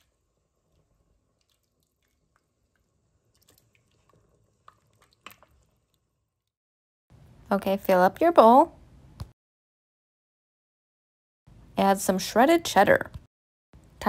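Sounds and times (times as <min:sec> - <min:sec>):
ladle stirring thick soup: 0:00.0 - 0:06.1.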